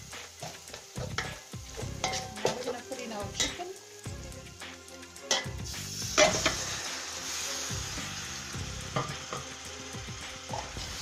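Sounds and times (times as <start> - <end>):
chicken sizzling in hot oil: 0.0 - 11.0
spoon knocking and scraping pot: 0.4 - 2.8.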